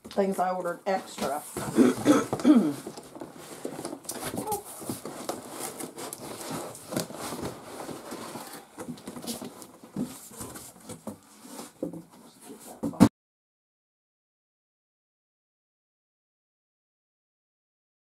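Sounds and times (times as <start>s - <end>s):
cardboard packaging rustling: 1.1s - 12.9s.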